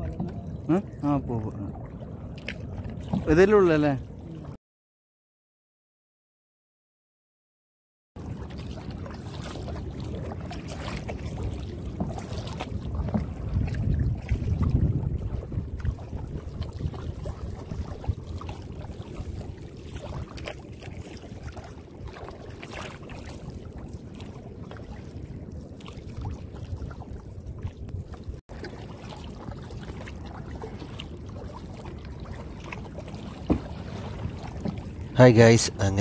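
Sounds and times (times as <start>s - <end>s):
paddle splashes and drips: 0.0s - 4.6s, 8.2s - 36.0s
wind on microphone: 8.8s - 28.4s.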